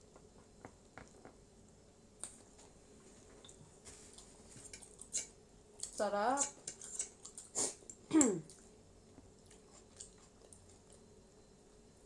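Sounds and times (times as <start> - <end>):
soft chewing and squishing: 2.2 - 11.5.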